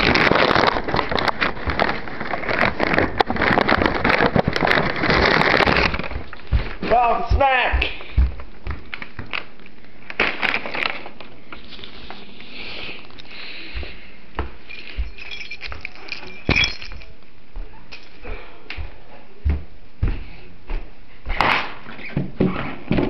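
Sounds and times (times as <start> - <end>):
household items clinking: 14.6 - 17.2.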